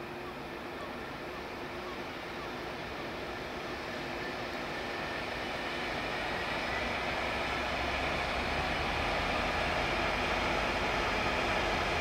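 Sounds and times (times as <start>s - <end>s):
diesel locomotive passing: 0.9s - 12.0s
wheels rumbling on rails: 4.2s - 12.0s.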